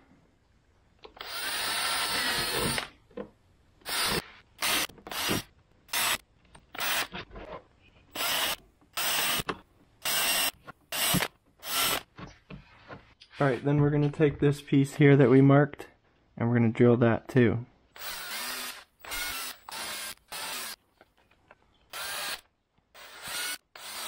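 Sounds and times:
cordless drill boring plastic: 1.2s - 2.9s, 3.9s - 7.1s, 8.2s - 12.0s, 18.0s - 20.8s, 21.9s - 24.0s.

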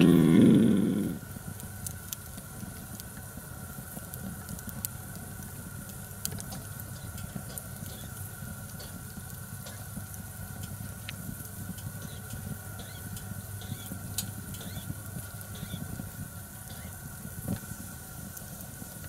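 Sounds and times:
wood fire crackling and popping: 0.1s - 19.0s.

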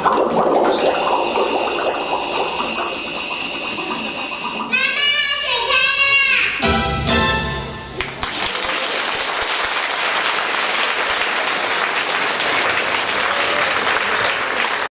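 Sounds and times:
audience applauding: 8.0s - 14.9s.

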